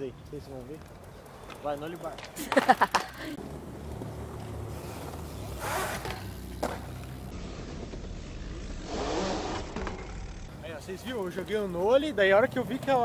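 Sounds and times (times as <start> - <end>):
bike tyres rolling on concrete: 0.0 - 13.0
rasping scrape: 8.7 - 10.5.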